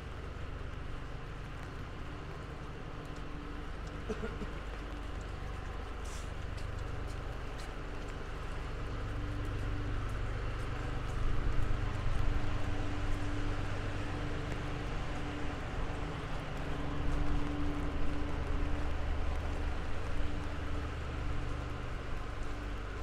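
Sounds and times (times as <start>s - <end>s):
droning hum: 0.0s - 23.0s
traffic engine rumble: 0.0s - 23.0s
hiss of passing vehicles: 6.0s - 6.6s.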